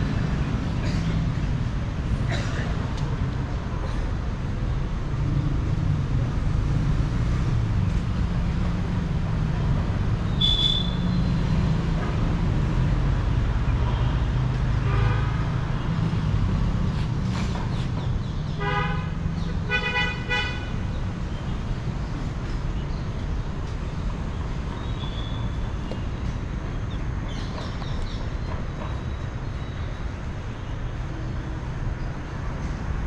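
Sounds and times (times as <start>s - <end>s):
road traffic rumble: 0.0s - 33.0s
vehicle horns honking: 10.4s - 11.0s, 14.8s - 15.6s, 18.6s - 20.8s.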